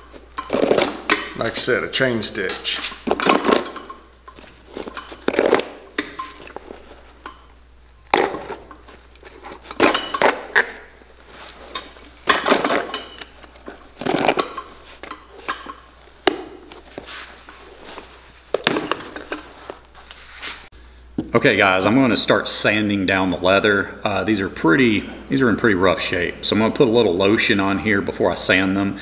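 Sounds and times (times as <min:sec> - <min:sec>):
handling of a boot: 0:02.4 - 0:07.5, 0:08.1 - 0:20.7.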